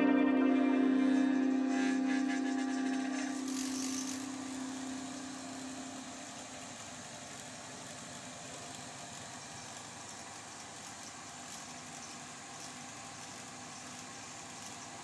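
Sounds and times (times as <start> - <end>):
held musical tone: 0.0 - 6.8
small machine motor running: 1.4 - 15.0.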